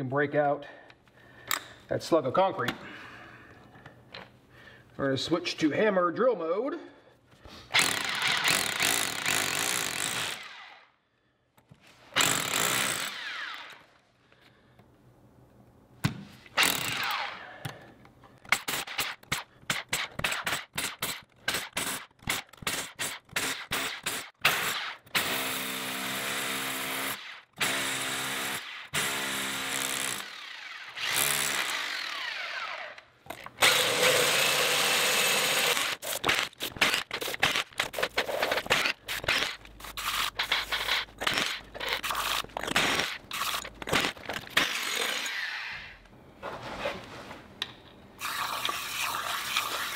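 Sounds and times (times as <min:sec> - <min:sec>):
rotary hammer drilling into concrete: 0:07.7 - 0:10.9, 0:12.1 - 0:13.9, 0:16.6 - 0:17.4, 0:18.5 - 0:46.0.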